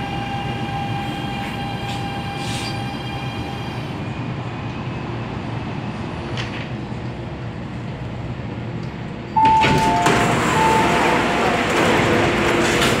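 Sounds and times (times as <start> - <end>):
train cabin rumble: 8.9 - 13.0
two-note chime: 9.4 - 11.5
doors sliding open with air rush: 9.4 - 13.0.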